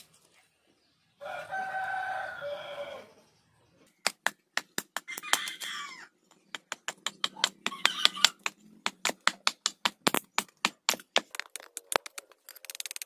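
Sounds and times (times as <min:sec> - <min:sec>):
rooster crowing: 0:01.2 - 0:03.3, 0:05.1 - 0:06.1, 0:07.7 - 0:08.4
hatchet chopping wood: 0:04.0 - 0:05.8, 0:06.4 - 0:12.2.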